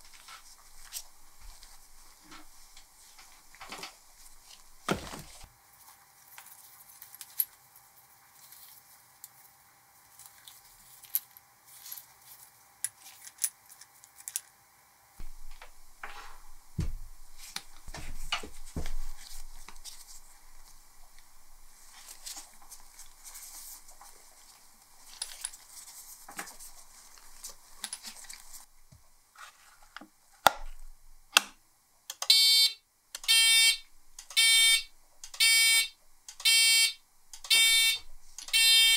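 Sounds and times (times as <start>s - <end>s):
pulsing alarm beeps: 32.3s - 33.8s, 34.4s - 38.0s, 38.6s - 38.9s.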